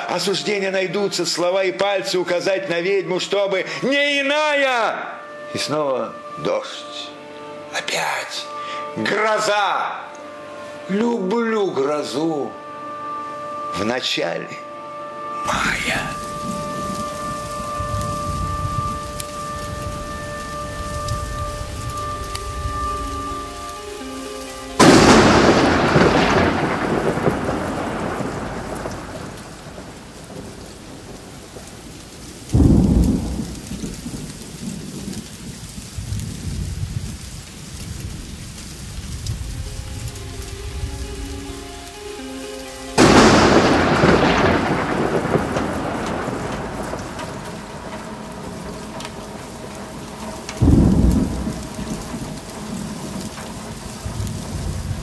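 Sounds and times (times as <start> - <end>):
heavy rain: 0.0 - 13.6, 14.9 - 55.0
thunder cracking and rumbling: 15.5 - 23.7, 24.7 - 41.6, 43.0 - 55.0.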